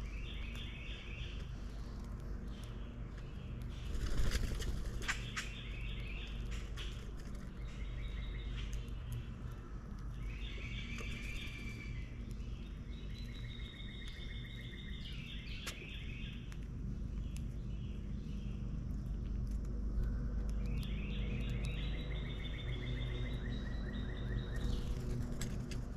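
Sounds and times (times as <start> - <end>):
birds chirping trills: 0.0 - 25.9
low outdoor rumble: 0.0 - 25.9.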